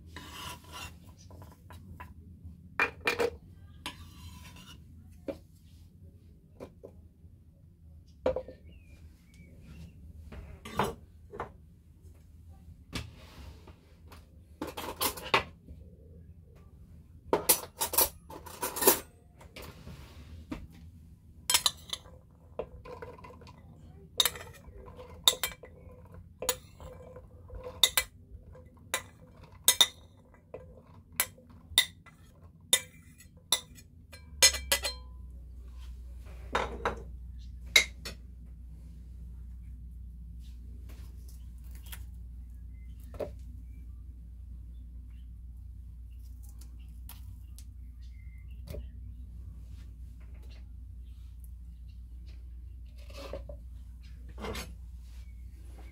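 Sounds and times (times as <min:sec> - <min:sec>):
metal spoon clinking on plate: 0:21.5 - 0:22.1, 0:24.2 - 0:28.1, 0:29.0 - 0:32.2, 0:32.8 - 0:35.2.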